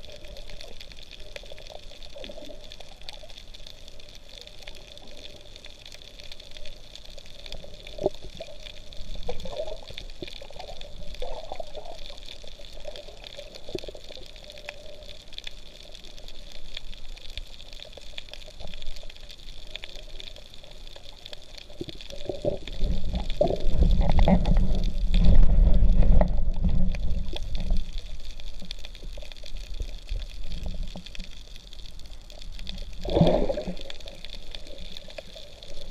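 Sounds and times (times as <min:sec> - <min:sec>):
low rushing rumble underwater: 0:00.0 - 0:35.9
water swishing and gurgling: 0:00.0 - 0:35.9.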